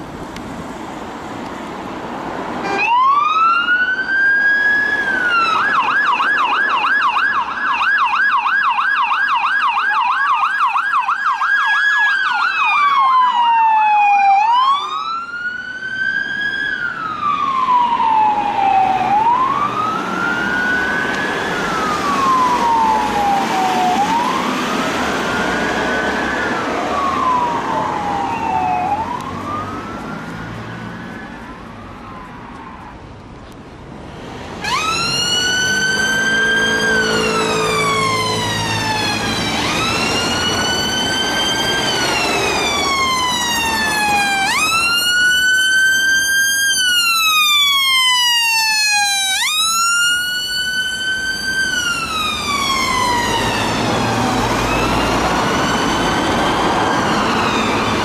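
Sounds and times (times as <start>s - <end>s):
police siren wailing and yelping: 2.6s - 32.5s, 34.6s - 58.0s.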